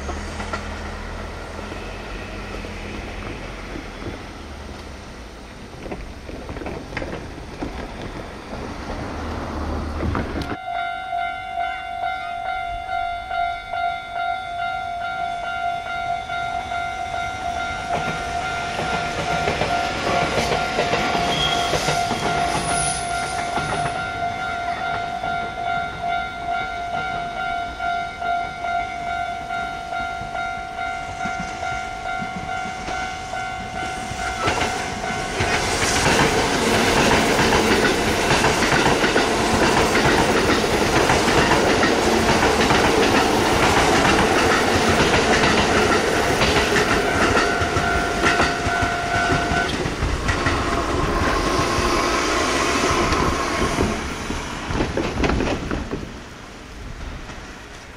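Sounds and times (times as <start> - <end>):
train wheel clatter: 0.0 - 10.6, 17.2 - 27.5, 29.9 - 56.3
electric train passing: 0.0 - 57.9
level crossing warning bell: 10.6 - 35.7, 39.8 - 49.8.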